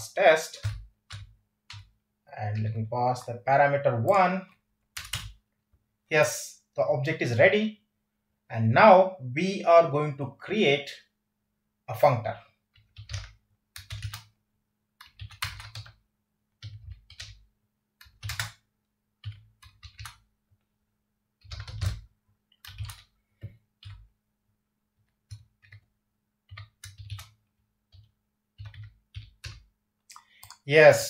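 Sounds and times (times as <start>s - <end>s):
computer keyboard typing: 0.5s - 2.0s, 4.4s - 5.4s, 12.7s - 14.4s, 15.0s - 16.0s, 16.6s - 20.3s, 21.4s - 24.1s, 25.0s - 30.6s.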